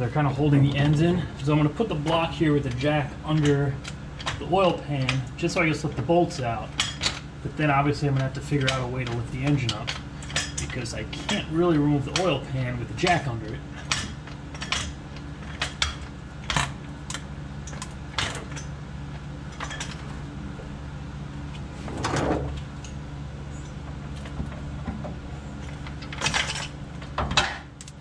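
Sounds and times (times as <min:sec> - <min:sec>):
steady low hum: 0:00.0 - 0:28.0
metal tool clicks and knocks: 0:27.4 - 0:28.0.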